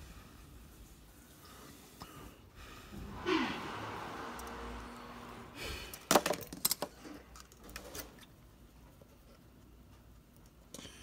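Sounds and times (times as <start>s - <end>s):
small hard parts clicking and rattling: 5.9s - 8.3s.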